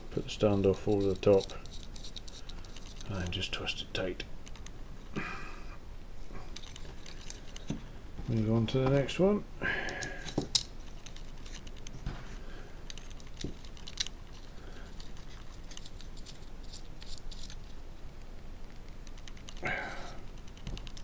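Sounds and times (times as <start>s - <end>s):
small screws clicking and scraping: 0.2s - 5.1s, 6.4s - 7.8s, 9.9s - 12.0s, 12.8s - 17.8s, 18.7s - 21.0s.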